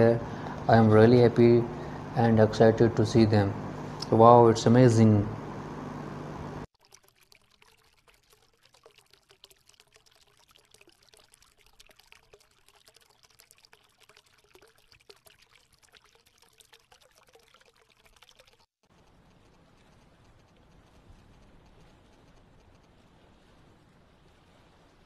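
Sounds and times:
water trickling over rocks: 6.6 - 25.0.

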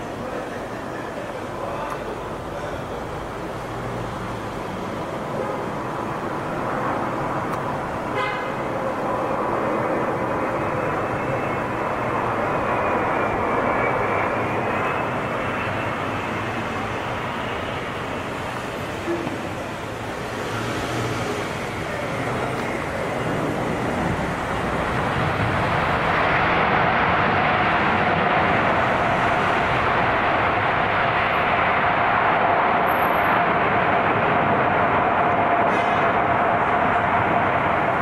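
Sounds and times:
jet aircraft passing low: 0.0 - 38.0
jet engine whine: 0.0 - 38.0.

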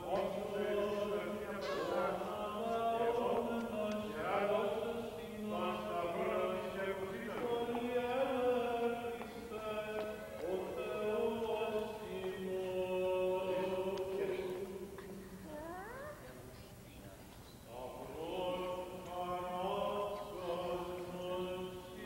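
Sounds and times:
voice chanting melodic lines: 15.5 - 16.4.

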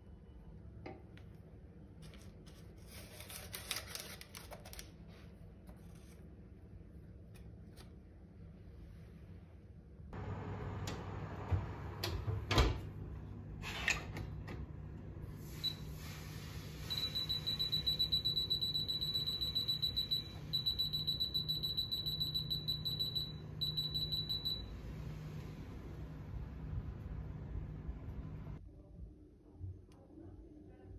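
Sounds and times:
low steady hum: 4.7 - 30.9
oven control beeping: 10.2 - 28.6.

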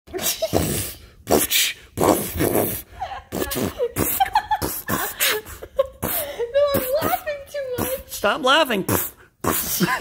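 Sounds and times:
person laughing: 2.9 - 7.2, 9.6 - 10.0.

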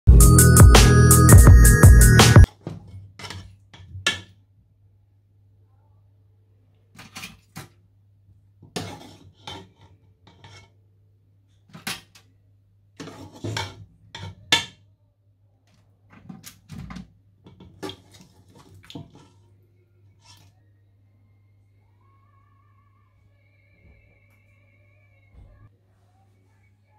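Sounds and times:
metal utensil scraping wire rack: 8.8 - 10.7, 13.0 - 14.8.

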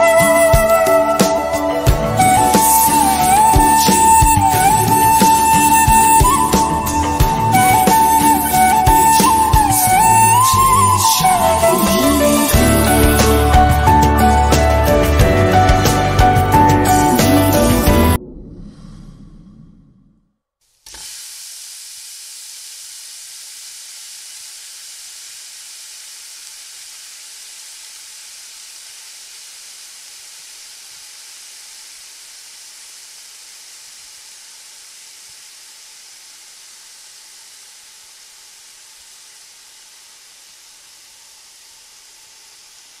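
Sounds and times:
sauce sizzling on hot plate: 20.9 - 43.0.

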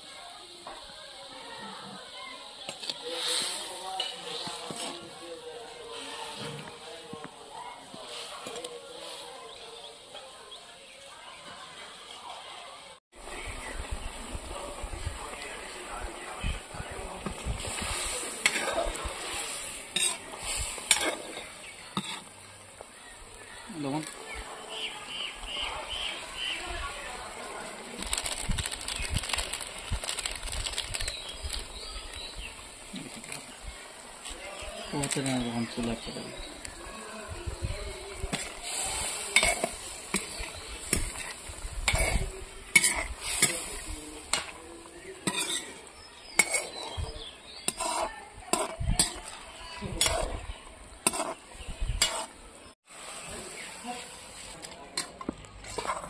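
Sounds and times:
steady sizzle: 0.0 - 56.0
ladle scraping and knocking pan: 17.2 - 22.3, 38.3 - 44.6, 45.2 - 50.4, 52.0 - 52.4.

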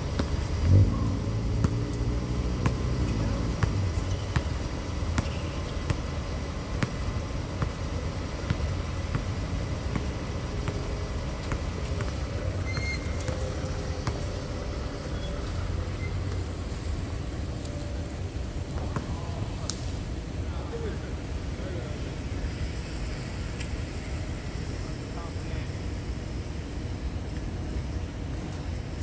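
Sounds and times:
basketball bouncing on hard court: 2.6 - 2.9, 3.6 - 6.1, 6.8 - 7.8, 8.4 - 13.4, 14.0 - 14.2
shoe squeak: 12.6 - 13.5.

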